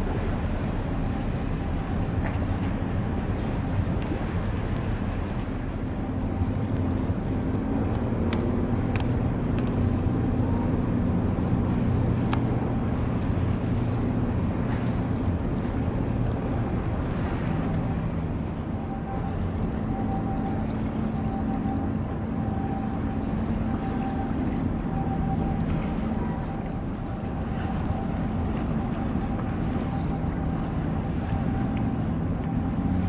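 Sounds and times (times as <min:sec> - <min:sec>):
ship engines droning: 0:00.0 - 0:33.0.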